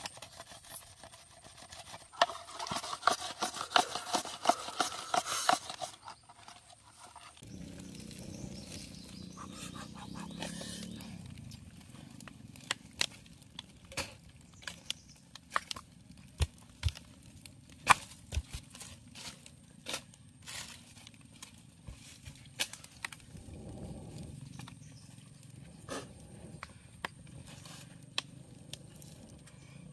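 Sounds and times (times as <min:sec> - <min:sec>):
campfire crackling and popping: 0:06.9 - 0:29.7
blowing on fire: 0:23.2 - 0:24.7, 0:25.7 - 0:29.4.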